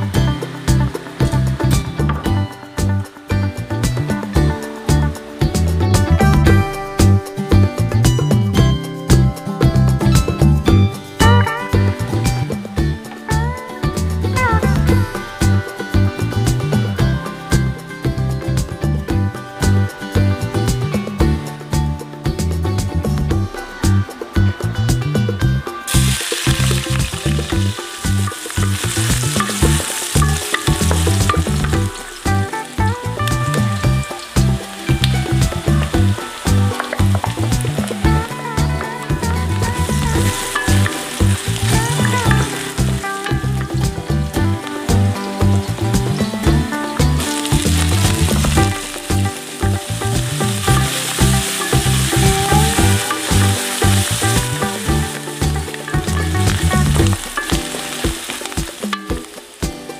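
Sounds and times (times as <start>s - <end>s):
onions sizzling in hot oil: 0.0s - 10.1s, 25.8s - 59.9s
background music: 0.0s - 59.9s.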